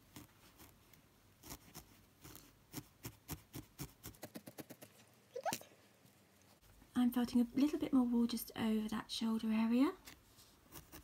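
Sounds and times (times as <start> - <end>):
felting needle poking foam: 0.0 - 5.7, 10.0 - 11.0.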